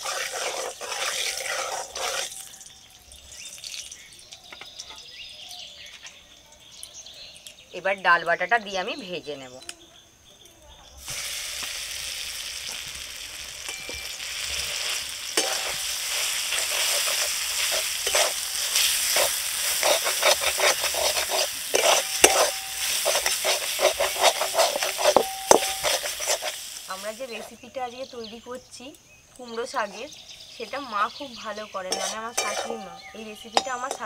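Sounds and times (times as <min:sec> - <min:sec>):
metal spatula scraping pan: 0:00.0 - 0:02.5, 0:13.6 - 0:27.6, 0:31.6 - 0:34.0
paste sizzling in hot oil: 0:00.0 - 0:04.8, 0:11.0 - 0:27.7, 0:30.6 - 0:34.0.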